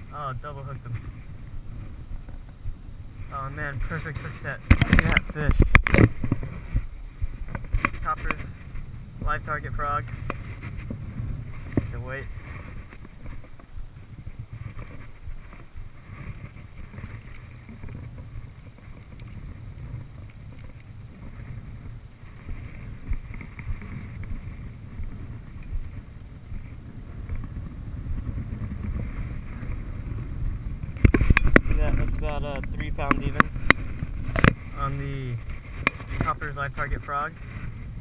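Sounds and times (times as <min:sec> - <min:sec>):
wind buffeting microphone: 0:00.0 - 0:38.0.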